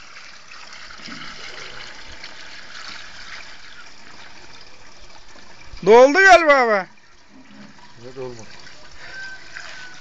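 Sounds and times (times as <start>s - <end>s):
fuel pouring through a funnel: 0.0s - 10.0s.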